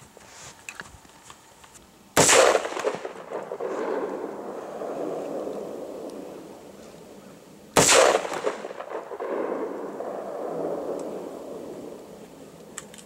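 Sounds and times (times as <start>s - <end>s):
rifle shot blast with echo: 2.2s - 6.7s, 7.8s - 12.2s.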